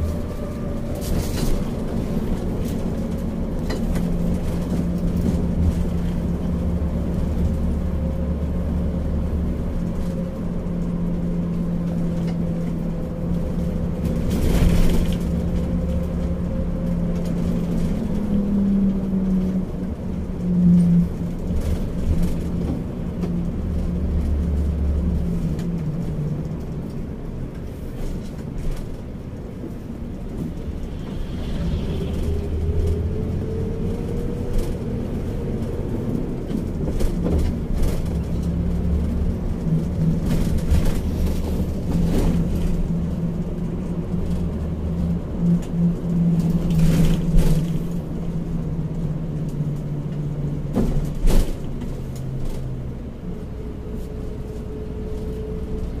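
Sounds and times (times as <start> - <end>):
bus engine drone: 0.0 - 56.0
road noise: 0.0 - 56.0
rush of noise: 29.6 - 34.9.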